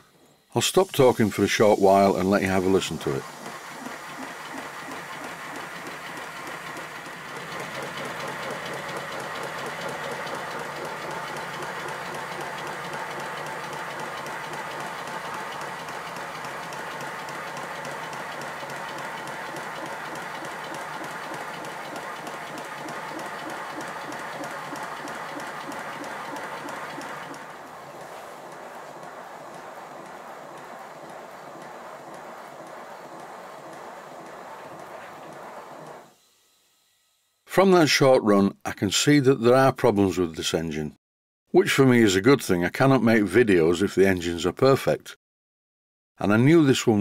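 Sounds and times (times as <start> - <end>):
model steam locomotive exhaust beats: 0.0 - 37.0
mechanical clatter: 0.7 - 36.2.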